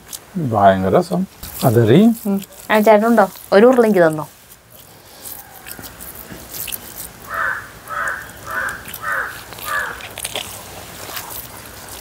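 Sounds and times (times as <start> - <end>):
crow cawing: 7.3 - 10.0.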